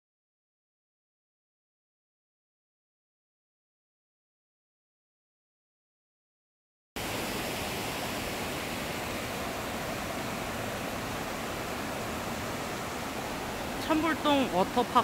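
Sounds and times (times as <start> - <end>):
stream rushing over rocks: 7.0 - 15.0.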